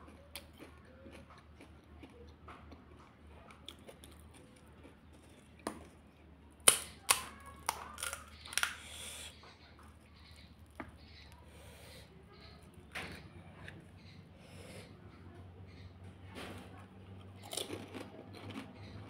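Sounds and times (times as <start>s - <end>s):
crisp shells cracking: 6.6s - 8.9s.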